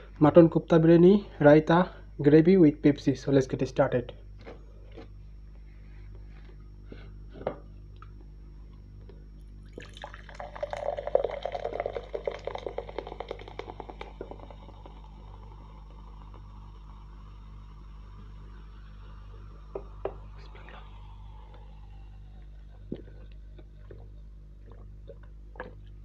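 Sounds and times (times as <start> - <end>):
cola pouring and splashing: 9.6 - 15.9.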